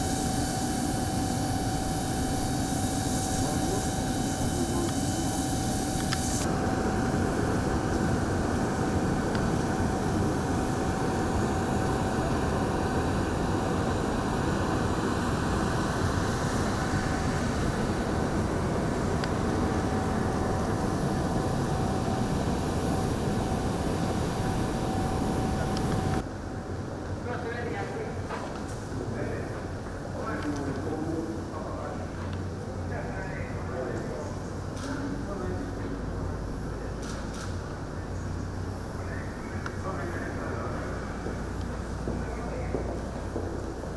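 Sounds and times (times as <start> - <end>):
jet turbines whining: 0.0 - 26.3.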